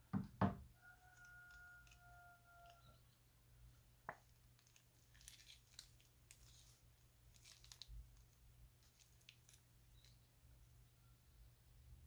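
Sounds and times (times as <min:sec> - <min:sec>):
plastic bag crackling: 0:04.3 - 0:10.3.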